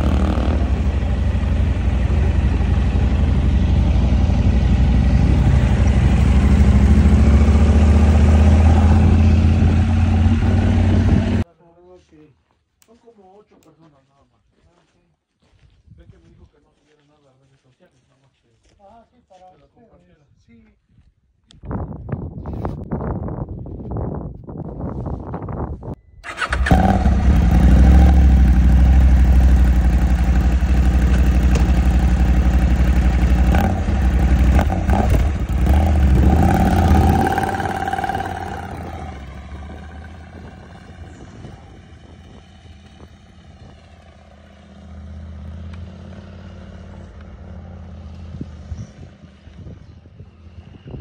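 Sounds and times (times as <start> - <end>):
motorcycle engine revving: 0.0 - 11.4, 26.2 - 49.5.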